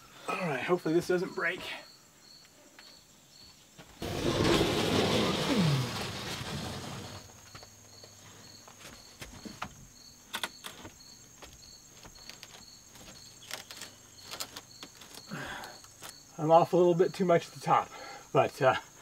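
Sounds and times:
crickets chirping: 0.0s - 19.0s
siding sheet scraping against wall: 4.0s - 7.5s.

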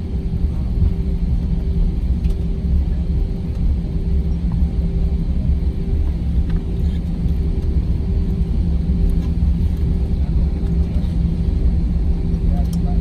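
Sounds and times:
jet engine cabin rumble: 0.0s - 13.0s.

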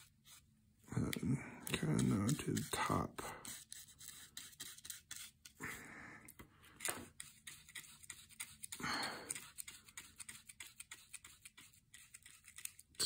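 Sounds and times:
paintbrush scratching on cardboard: 0.0s - 0.5s, 1.7s - 5.4s, 7.1s - 12.9s
faint breaths: 5.6s - 6.9s, 8.8s - 9.4s.

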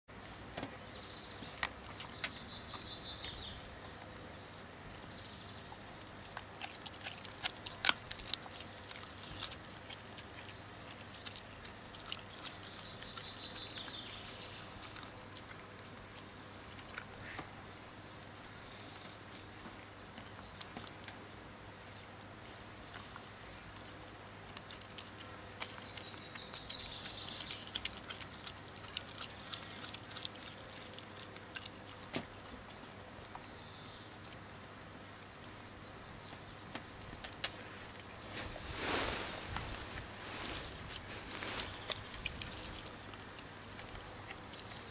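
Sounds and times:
dog chewing bone: 1.4s - 17.4s, 22.8s - 38.2s, 41.7s - 44.9s.

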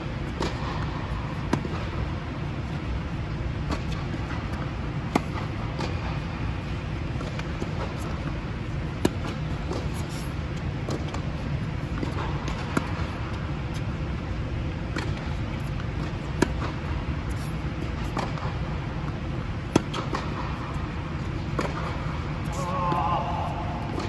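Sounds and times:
steady low hum: 0.0s - 24.0s
racket hitting tennis ball: 0.2s - 2.1s, 3.6s - 13.8s, 14.7s - 24.0s.

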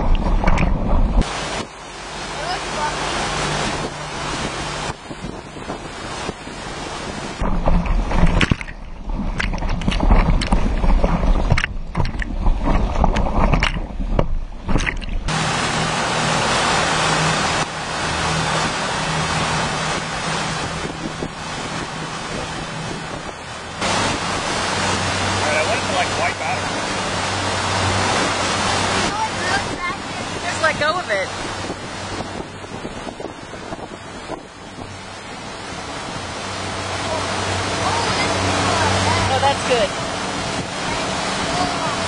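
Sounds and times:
boat wake water splashing: 0.0s - 42.0s
faint boat engine hum: 0.0s - 42.0s
wind buffeting microphone: 0.0s - 42.0s.

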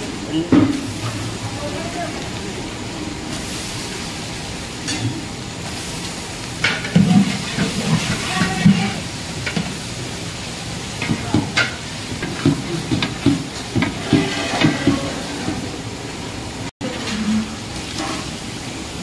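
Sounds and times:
vegetables sizzling in hot oil: 0.0s - 19.0s
metal ladle clinking and scraping pot: 13.8s - 15.2s.

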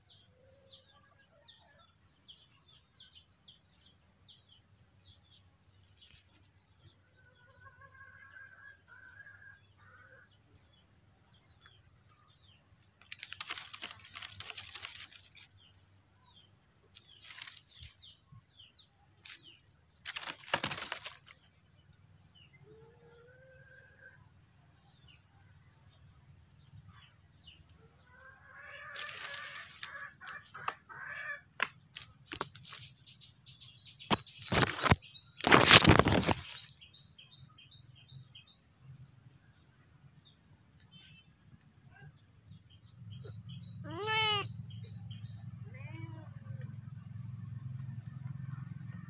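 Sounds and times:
rustling noise bursts: 13.1s - 15.5s, 20.1s - 21.4s, 28.9s - 30.0s, 34.1s - 36.7s.

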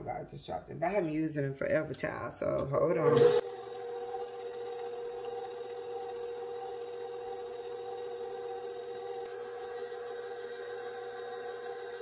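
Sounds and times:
stand mixer motor whining: 3.1s - 12.0s.

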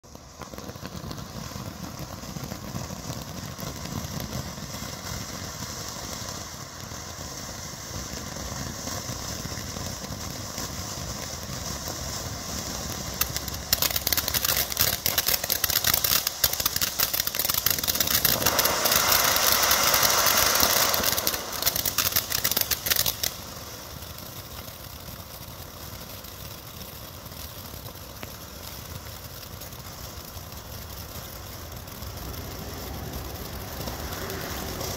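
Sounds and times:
firework fountain hissing: 0.0s - 34.9s
dense rapid crackling: 9.1s - 34.9s.

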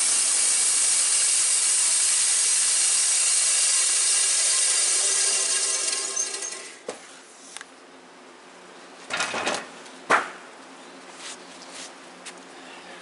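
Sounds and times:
sawmill sawing: 0.0s - 6.8s.

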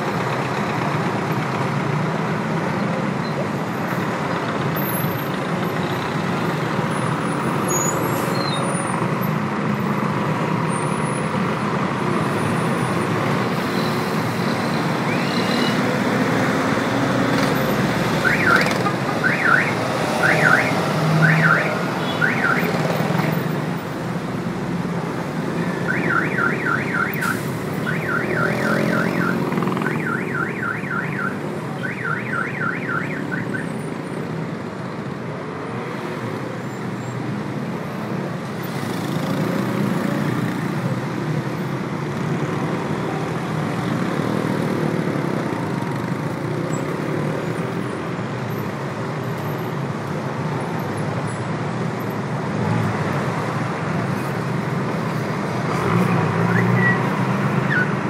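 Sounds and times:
city traffic rumble: 0.0s - 58.0s
car alarm whooping and chirping: 18.2s - 22.7s, 25.9s - 33.6s.

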